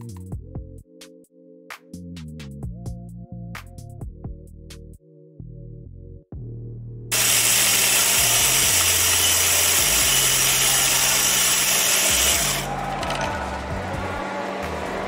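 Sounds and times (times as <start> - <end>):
low bass music: 0.0 - 0.9, 2.0 - 7.2, 12.1 - 15.0
coffee grinder grinding beans: 7.1 - 13.3.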